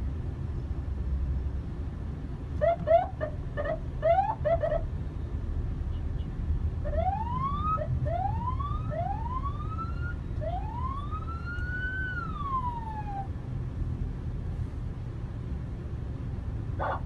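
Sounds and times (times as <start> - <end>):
traffic rumble: 0.0 - 17.0
police siren: 2.6 - 4.8, 6.8 - 13.4.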